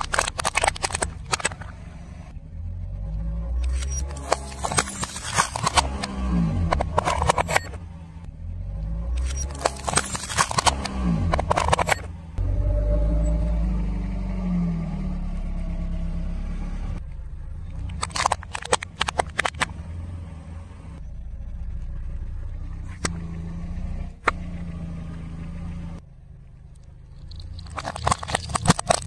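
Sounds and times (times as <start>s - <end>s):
tyre crushing plastic objects: 0.0s - 1.7s, 27.3s - 29.0s
car engine rumbling: 0.0s - 29.0s.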